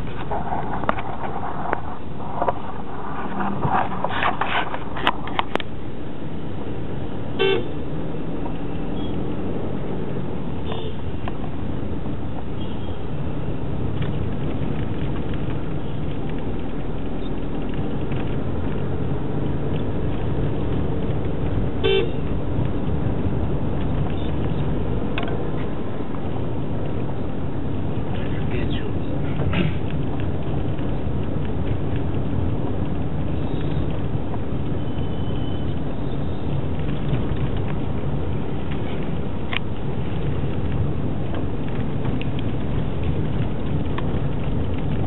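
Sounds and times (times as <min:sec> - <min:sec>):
car road and engine noise: 0:00.0 - 0:45.0
vehicle horn toot: 0:07.4 - 0:07.8, 0:10.6 - 0:11.0, 0:12.6 - 0:13.0, 0:21.8 - 0:22.3.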